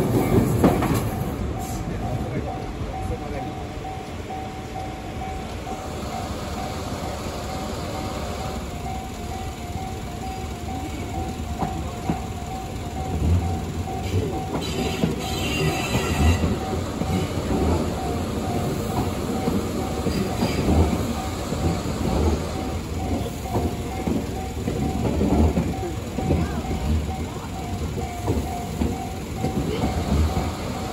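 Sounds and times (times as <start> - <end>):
train rumble and wheel clatter: 0.0 - 30.9
level crossing bell ringing: 1.6 - 21.6.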